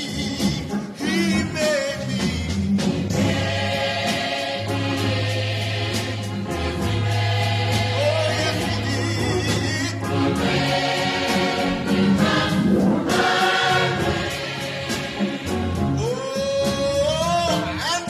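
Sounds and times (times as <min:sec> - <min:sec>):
gospel choir singing: 0:00.0 - 0:18.0
instrumental accompaniment with beat: 0:00.0 - 0:18.0.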